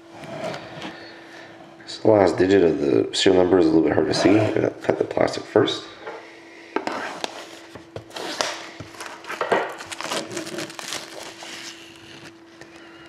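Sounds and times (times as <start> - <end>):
plastic wrap crackling and tearing: 8.1 - 12.4.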